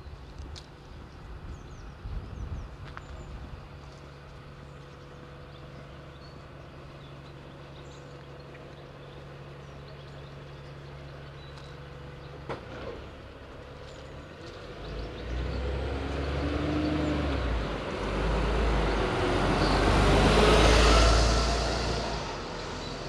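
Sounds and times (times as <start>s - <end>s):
small birds chirping: 0.0s - 23.0s
bus diesel engine droning: 3.5s - 23.0s
low rumble: 17.6s - 23.0s.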